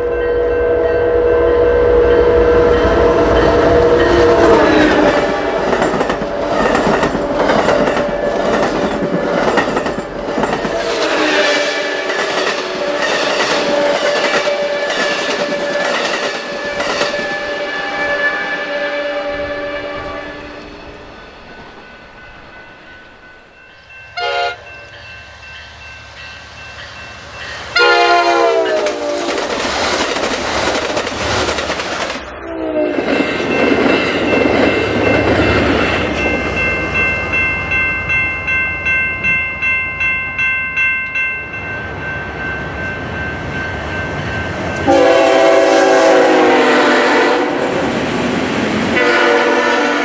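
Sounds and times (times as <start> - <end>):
rush of passing train cars: 0.0 - 50.0
locomotive air horn blasts: 11.0 - 12.2, 17.3 - 20.5, 24.2 - 24.7, 27.8 - 29.2, 44.9 - 47.7, 49.0 - 50.0.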